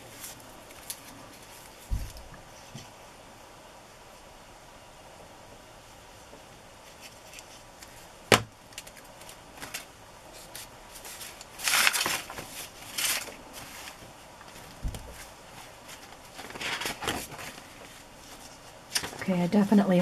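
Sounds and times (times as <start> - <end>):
paper rustling and rubbing: 0.0 - 2.9, 6.8 - 8.1, 8.8 - 20.0
dull thump: 1.9 - 2.2.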